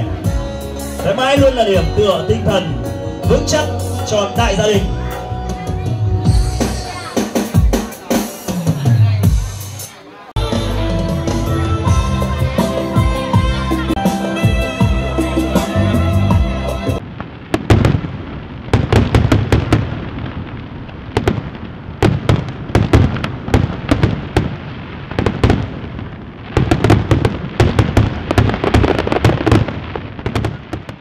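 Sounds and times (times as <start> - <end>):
fireworks popping and banging: 3.2 - 10.4, 17.0 - 31.0.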